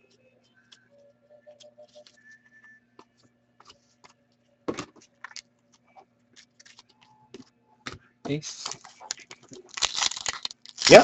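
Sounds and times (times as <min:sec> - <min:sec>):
trading cards clicking and rustling: 0:08.3 - 0:11.0.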